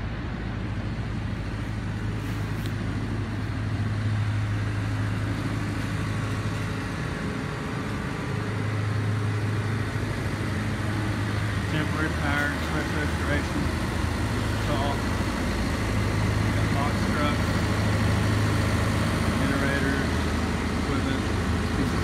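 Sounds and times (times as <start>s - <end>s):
engine humming: 0.0s - 22.0s.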